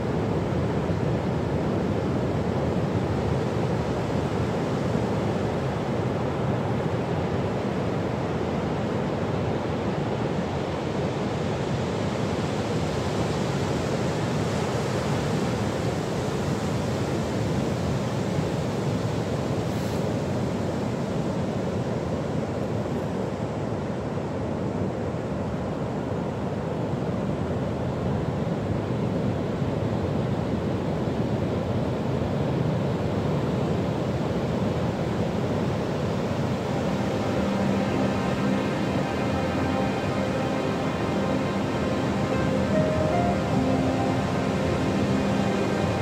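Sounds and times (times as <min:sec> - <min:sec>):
ocean surf breaking on beach: 0:32.2 - 0:46.0.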